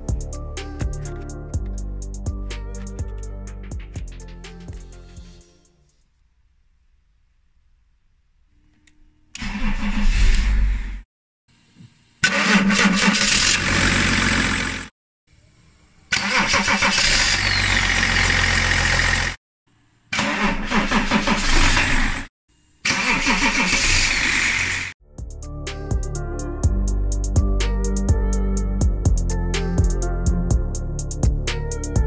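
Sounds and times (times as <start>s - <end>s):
starter motor cranking car engine: 12.2s - 14.8s, 16.1s - 19.4s, 20.2s - 22.2s, 22.9s - 24.7s
car engine starting: 12.2s - 14.9s, 16.1s - 19.4s, 20.2s - 22.2s, 22.9s - 24.9s.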